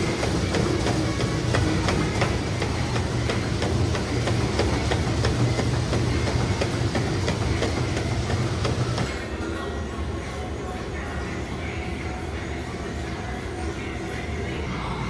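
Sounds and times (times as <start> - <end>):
running footfalls thudding: 0.0 - 9.1
treadmill motor and belt hum: 0.0 - 15.0.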